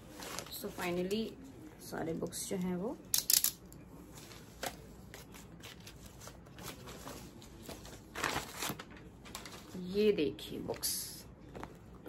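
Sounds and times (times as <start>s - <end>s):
paper wrapping rustling: 0.0s - 1.2s, 4.0s - 10.0s.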